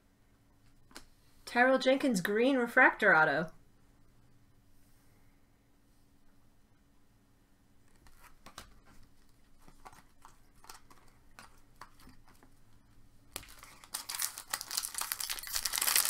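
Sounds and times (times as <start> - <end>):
cards and packaging rustling: 7.9 - 16.0
foil wrapper crinkling and tearing: 13.3 - 16.0.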